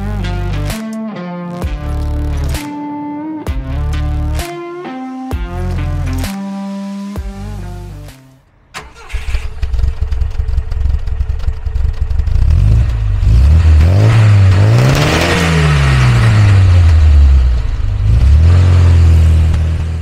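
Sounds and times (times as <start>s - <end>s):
car engine idling and revving: 1.6s - 2.7s, 5.3s - 20.0s.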